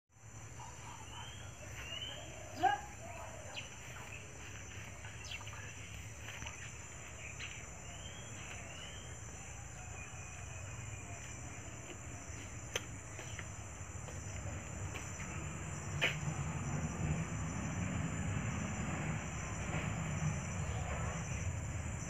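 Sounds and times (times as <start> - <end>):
faint bird chirps: 0.5 - 11.5.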